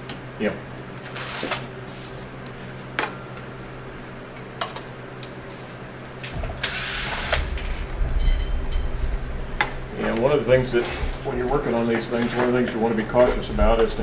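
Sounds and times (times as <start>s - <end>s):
steady low hum: 0.0s - 14.0s
rustling scrape with low rumble: 5.4s - 14.0s.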